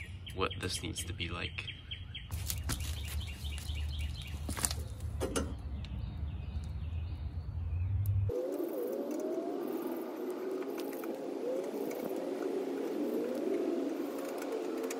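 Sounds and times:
birds chirping: 0.0s - 14.9s
rising whine: 8.0s - 14.9s.

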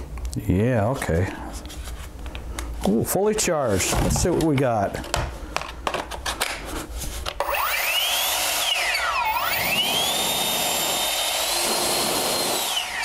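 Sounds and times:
leaf blower whine: 7.4s - 13.0s.

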